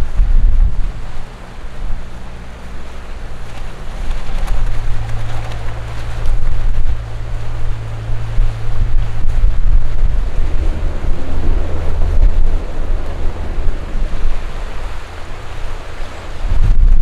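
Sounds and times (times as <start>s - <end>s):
boat engine humming: 0.0s - 17.0s
boat wash and sea: 0.0s - 17.0s
wind buffeting microphone: 0.0s - 17.0s.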